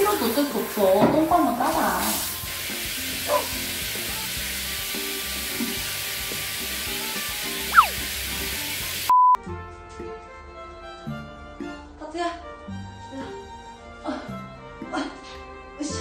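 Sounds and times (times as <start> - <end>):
shower spraying water: 0.0 - 9.1
test-tone beep: 7.7 - 7.9, 9.1 - 9.4
whistle-like squeak: 7.7 - 8.0
soft background music: 9.4 - 16.0.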